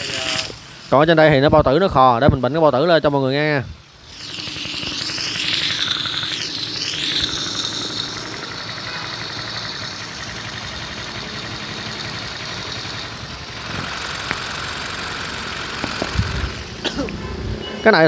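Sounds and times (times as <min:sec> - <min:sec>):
motorcycle engine running: 0:00.0 - 0:17.7.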